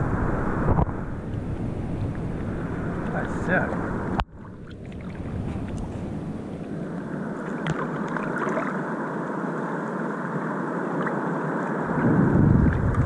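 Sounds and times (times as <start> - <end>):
water lapping against surfboard: 4.0 - 6.8, 7.4 - 9.0
water drips and splashes: 4.2 - 5.9, 7.4 - 8.8.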